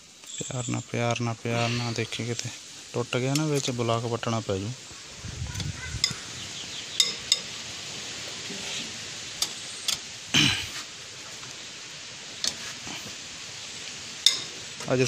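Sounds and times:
metallic clicks and clinks: 0:00.2 - 0:01.3.

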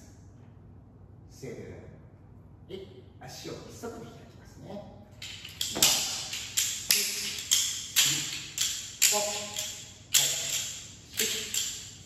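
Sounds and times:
wooden clappers clacking: 0:05.2 - 0:12.0.

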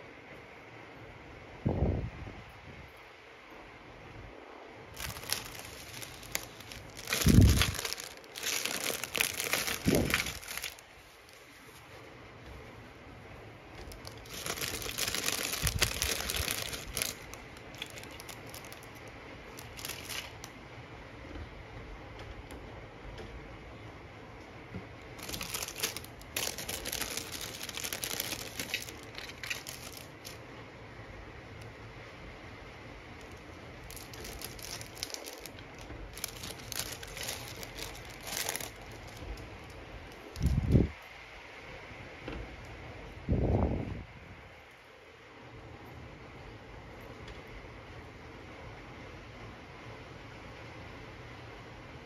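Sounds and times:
plastic bag crinkling: 0:04.9 - 0:11.9, 0:13.7 - 0:20.6, 0:25.1 - 0:30.4, 0:33.2 - 0:40.7.

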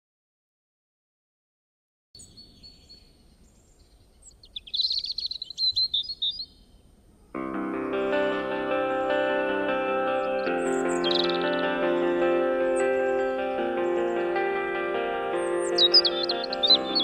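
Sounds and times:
birds chirping: 0:02.2 - 0:17.0
music: 0:07.4 - 0:17.0.

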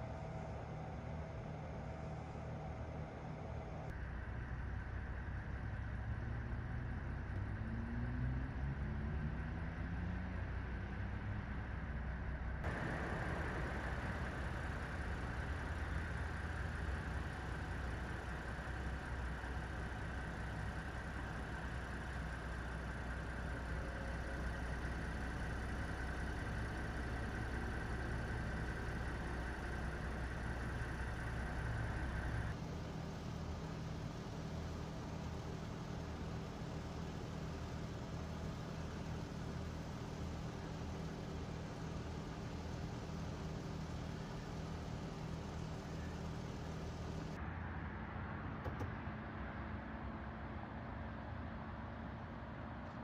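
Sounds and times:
vehicle engines idling: 0:09.3 - 0:47.4.

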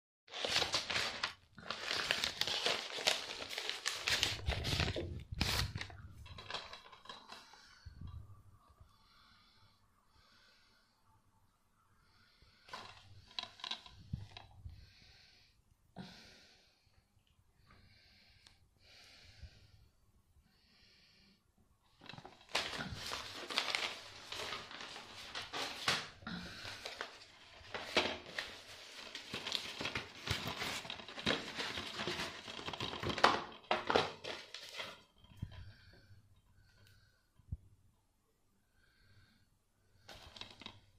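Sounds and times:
plastic crinkling and rustling: 0:00.3 - 0:07.8, 0:12.7 - 0:14.5, 0:21.9 - 0:35.9, 0:40.0 - 0:40.9
soft breathing: 0:05.6 - 0:32.4, 0:34.7 - 0:37.7, 0:38.5 - 0:40.9.

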